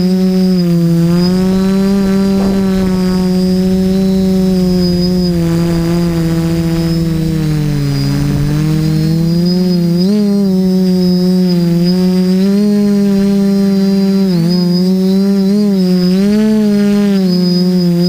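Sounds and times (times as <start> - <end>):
drone propellers whining: 0.0 - 12.1.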